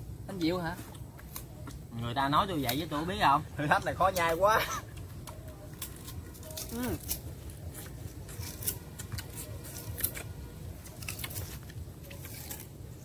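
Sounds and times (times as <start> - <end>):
sugarcane crunching while chewed: 0.8 - 1.9, 4.1 - 13.0.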